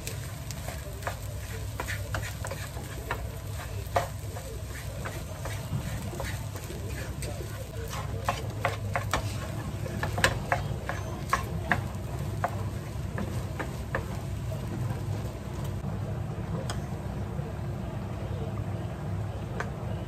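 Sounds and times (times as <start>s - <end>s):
spatula scraping frying pan: 0.0s - 14.7s
faint sizzle: 0.0s - 20.0s.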